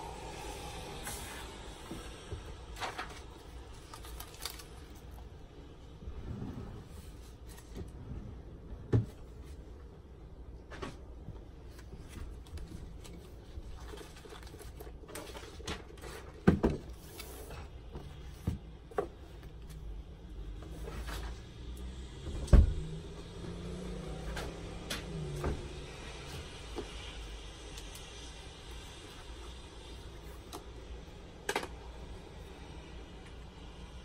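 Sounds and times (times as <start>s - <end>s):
paper rustling: 2.8s - 5.2s, 11.7s - 17.6s.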